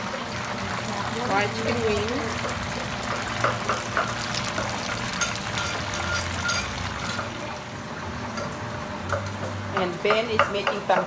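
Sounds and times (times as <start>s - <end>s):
wings sizzling in hot oil: 0.0s - 11.0s.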